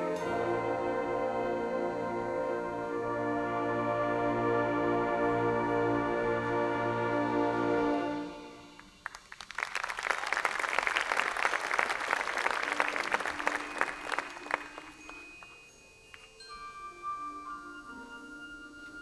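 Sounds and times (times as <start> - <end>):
marching band playing: 0.0 - 9.0
crowd applause: 8.8 - 15.6.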